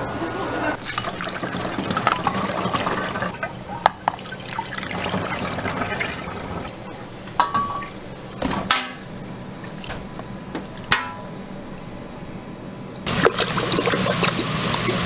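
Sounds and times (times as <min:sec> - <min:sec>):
metal utensils knocking on pot: 0:10.9 - 0:11.3.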